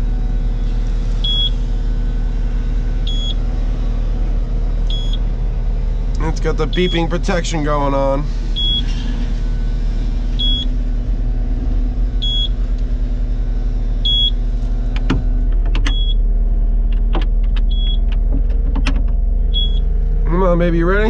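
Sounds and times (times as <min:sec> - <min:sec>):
diesel engine idling: 0:00.0 - 0:21.0
short high warning beeps: 0:06.7 - 0:07.2, 0:08.6 - 0:08.9.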